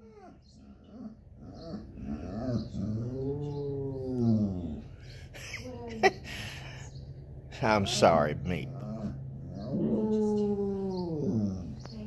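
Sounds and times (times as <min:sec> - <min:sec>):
dog howling: 0:00.0 - 0:05.0, 0:08.7 - 0:12.0.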